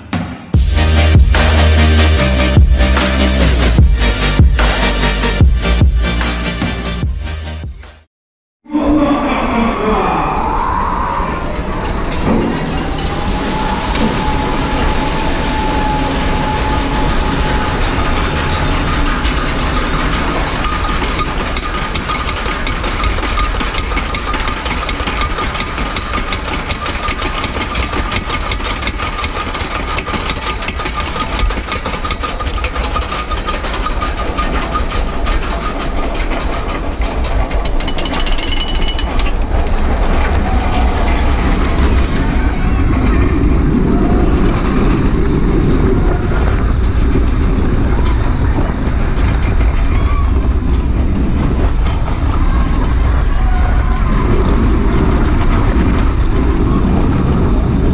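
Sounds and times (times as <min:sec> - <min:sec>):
steady whine: 0:00.0 - 0:08.0, 0:08.7 - 0:21.0
lift chain clattering: 0:11.8 - 0:42.3.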